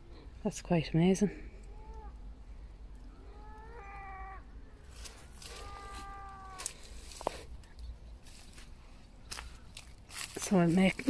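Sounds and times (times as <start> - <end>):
animal calling: 3.1 - 4.6, 5.4 - 6.8.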